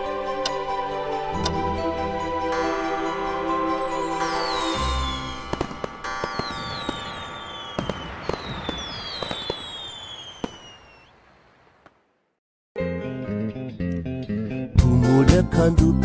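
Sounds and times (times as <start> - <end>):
firework whistles falling: 4.2 - 11.4
firework crackling: 4.4 - 12.3
firework bangs: 4.7 - 12.3.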